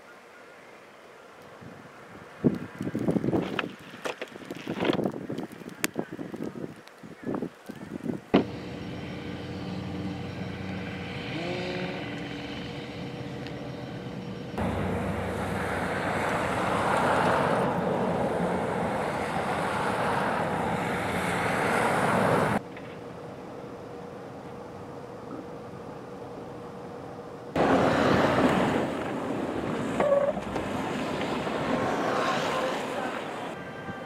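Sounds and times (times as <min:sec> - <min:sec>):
car engine running: 0:08.4 - 0:16.8
blowing snow: 0:08.4 - 0:22.6, 0:27.6 - 0:33.5
traffic rushing: 0:08.4 - 0:23.3, 0:27.5 - 0:34.0.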